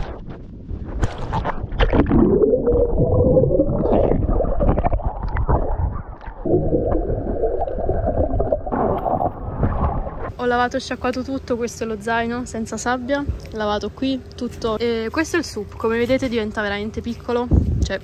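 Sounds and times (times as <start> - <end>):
muffled underwater rush and gurgle: 0.0 - 10.3
water splashing: 0.7 - 10.3.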